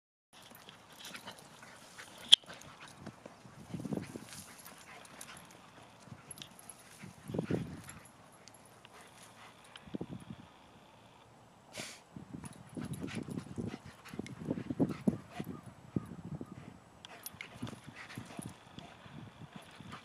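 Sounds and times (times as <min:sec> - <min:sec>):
paws scuffing dirt: 0:00.4 - 0:09.9.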